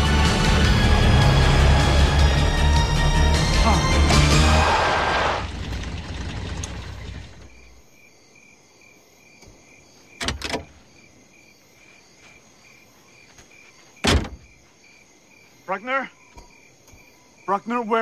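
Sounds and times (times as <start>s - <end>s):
dramatic orchestral score: 0.0s - 5.5s
crickets chirping: 5.4s - 18.0s.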